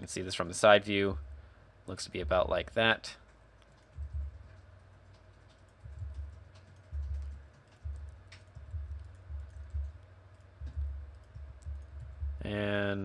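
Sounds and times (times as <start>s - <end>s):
keyboard and mouse thumps: 3.7s - 10.0s, 10.6s - 12.4s.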